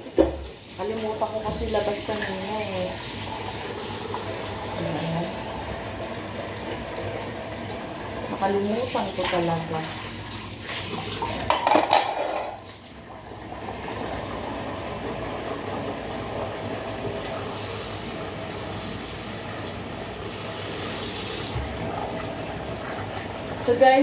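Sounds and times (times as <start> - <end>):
tap water running into sink: 0.0 - 24.0
kitchenware clattering: 11.2 - 12.7.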